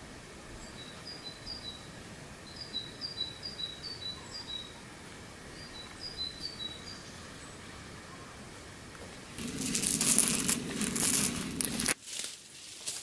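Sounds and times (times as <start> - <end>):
steady outdoor hiss: 0.0 - 13.0.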